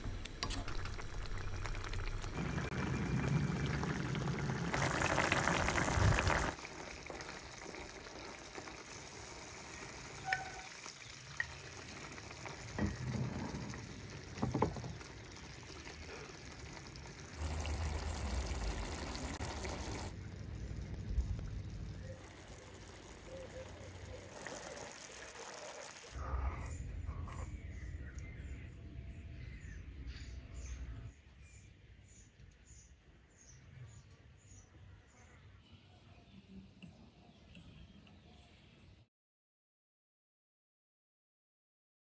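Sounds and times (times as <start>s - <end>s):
sizzling pouring rush: 0.4s - 26.2s
sauce simmering in a pan: 0.8s - 26.2s.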